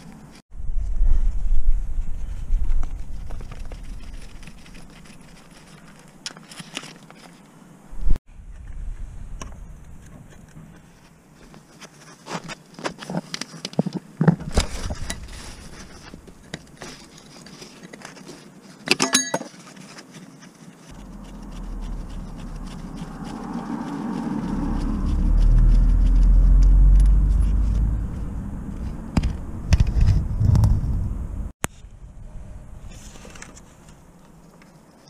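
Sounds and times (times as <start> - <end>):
low rumble: 7.9 - 10.6, 20.9 - 33.4.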